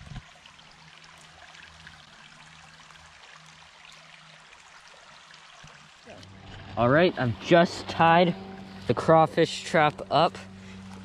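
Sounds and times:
creek water trickling: 0:00.0 - 0:11.0.

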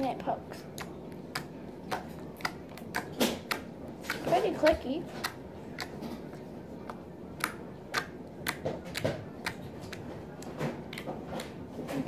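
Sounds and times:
slime clicking and popping: 0:00.6 - 0:11.7.

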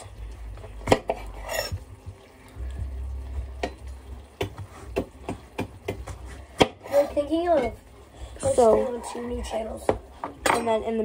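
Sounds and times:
low hum: 0:00.0 - 0:04.4.

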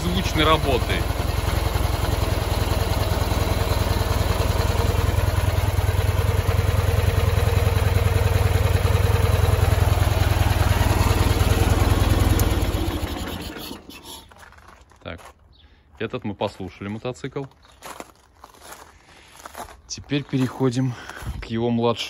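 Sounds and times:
motorcycle engine idling: 0:00.0 - 0:14.4.

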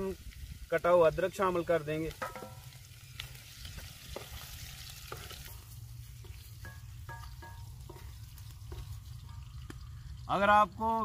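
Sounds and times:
onions sizzling in hot oil: 0:00.0 - 0:11.0
wooden spoon knocking and scraping pot: 0:02.1 - 0:02.7, 0:04.1 - 0:09.8.

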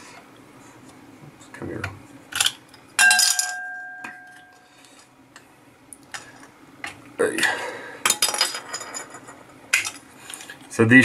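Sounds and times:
sharp ringing clink: 0:03.0 - 0:04.7.

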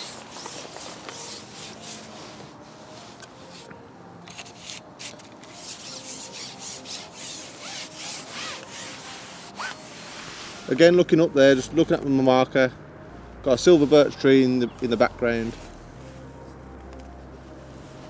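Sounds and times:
fishing pole rubbing through hands: 0:00.0 - 0:03.7, 0:04.4 - 0:10.8.

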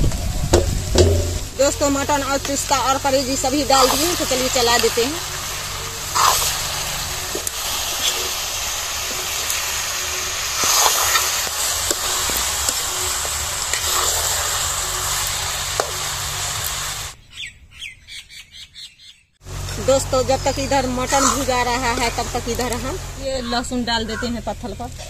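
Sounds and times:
meat sizzling in oil: 0:00.1 - 0:17.2
metal ladle scraping pan: 0:00.6 - 0:17.1.

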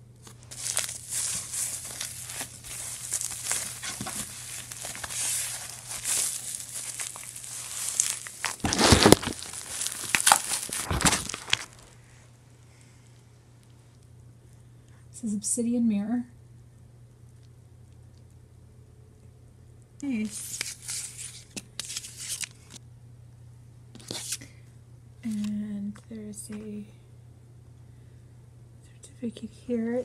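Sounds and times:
bubble wrap and paper crinkling: 0:00.1 - 0:12.0, 0:20.1 - 0:22.8, 0:24.0 - 0:24.4.

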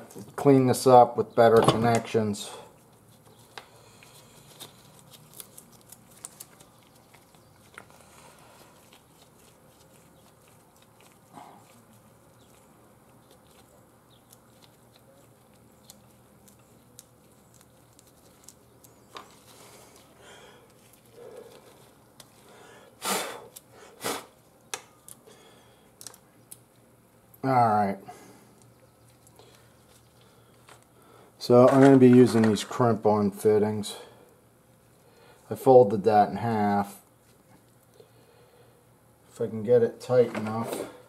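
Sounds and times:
faint clicks and rustles of wiring: 0:02.8 - 0:22.4, 0:24.6 - 0:27.5, 0:28.5 - 0:32.7, 0:37.1 - 0:38.1.

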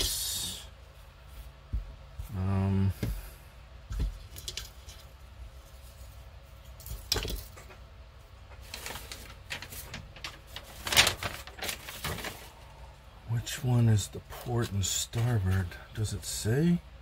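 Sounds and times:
soft rustling: 0:00.8 - 0:02.4
plastic parts clicking and knocking: 0:03.9 - 0:05.1, 0:06.8 - 0:07.9.

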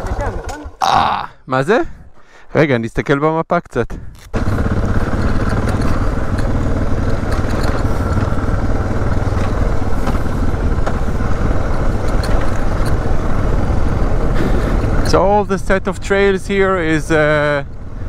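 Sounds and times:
motorcycle engine running: 0:00.0 - 0:01.1, 0:04.3 - 0:18.0.

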